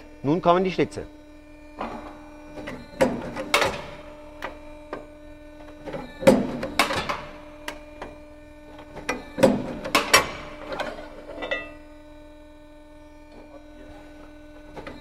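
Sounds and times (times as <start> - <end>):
steady hum: 0.0 - 15.0
punching machine metallic clacks: 3.0 - 4.0.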